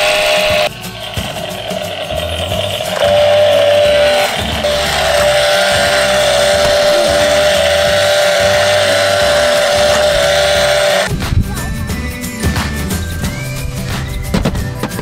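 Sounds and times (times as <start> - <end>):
toy chainsaw electronic engine sound: 0.0 - 11.1.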